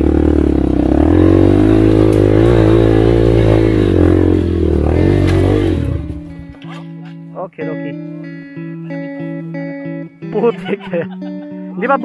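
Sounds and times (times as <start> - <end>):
dirt bike engine revving: 0.0 - 6.5.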